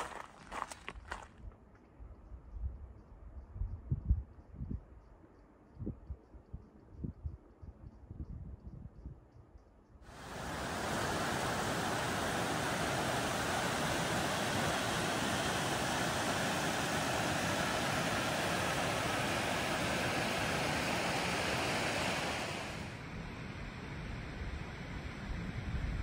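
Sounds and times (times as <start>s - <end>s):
creek rushing over rocks: 0.0s - 0.7s, 10.1s - 23.0s.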